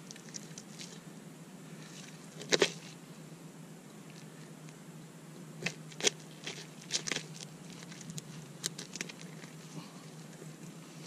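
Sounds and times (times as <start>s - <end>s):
wet crunches and clicks: 2.4s - 2.9s, 5.6s - 9.6s.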